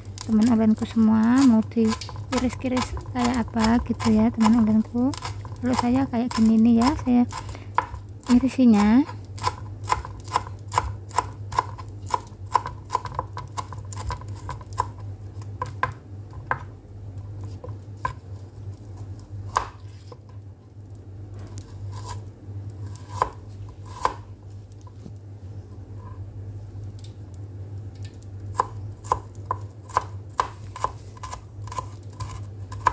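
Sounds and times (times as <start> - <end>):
knife chopping on cutting board: 1.4 - 15.0, 19.5 - 19.8, 22.9 - 24.2, 28.6 - 32.9.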